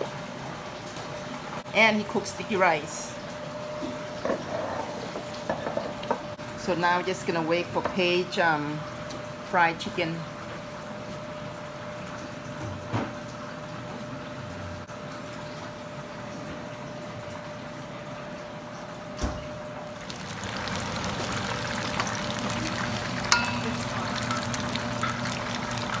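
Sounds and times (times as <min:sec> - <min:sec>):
wings deep-frying in oil: 0:19.2 - 0:26.0.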